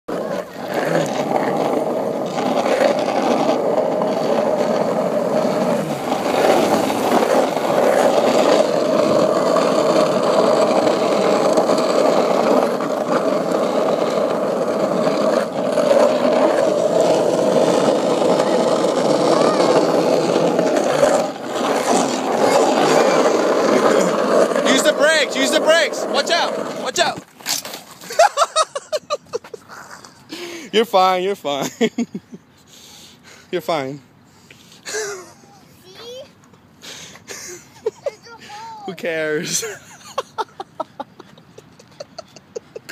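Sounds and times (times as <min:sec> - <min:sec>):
bicycle rattling over asphalt: 0:00.1 - 0:29.0.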